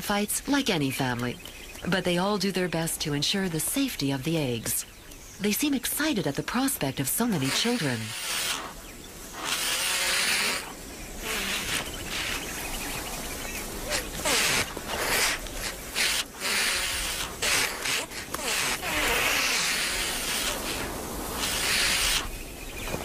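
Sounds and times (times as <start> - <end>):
ostriches hissing: 5.5 - 22.4
wings rustling: 7.2 - 23.0.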